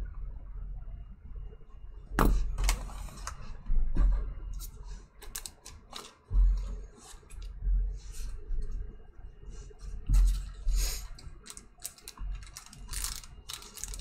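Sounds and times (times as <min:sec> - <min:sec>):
plastic wrapper tearing and crinkling: 0:11.4 - 0:14.0.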